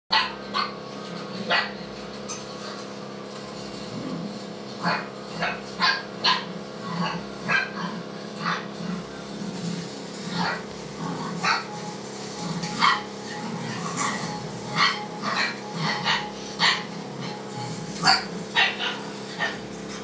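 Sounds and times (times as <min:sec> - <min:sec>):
dogs barking: 0:00.1 - 0:20.0.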